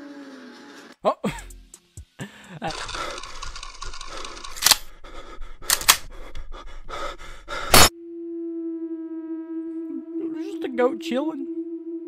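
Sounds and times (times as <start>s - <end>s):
loud sharp clicks: 2.8s - 4.9s, 5.6s - 6.1s.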